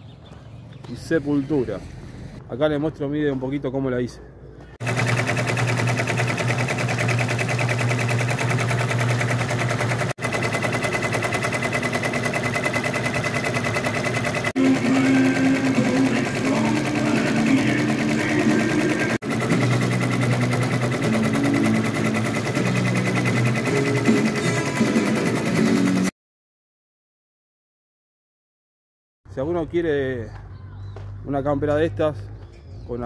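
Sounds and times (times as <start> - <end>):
sewing machine stitching: 4.8 - 26.1.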